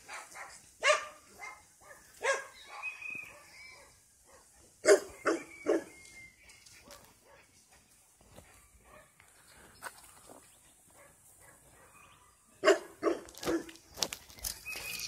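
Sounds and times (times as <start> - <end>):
dog barking: 0.0 - 5.9, 6.8 - 7.5, 8.5 - 9.2, 10.9 - 13.8.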